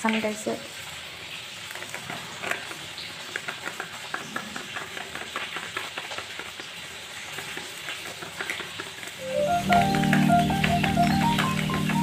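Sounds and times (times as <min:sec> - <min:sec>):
spoon scraping plastic container: 0:01.7 - 0:09.2.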